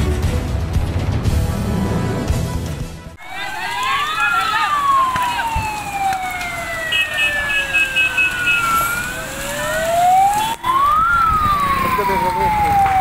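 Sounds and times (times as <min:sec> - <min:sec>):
fire engine siren wailing: 0:03.2 - 0:13.0.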